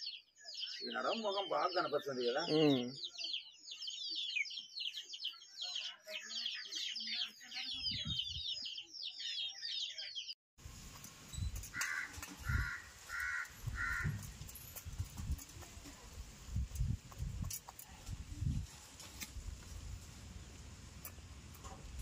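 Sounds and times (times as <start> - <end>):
small birds chirping: 0.0 - 10.4.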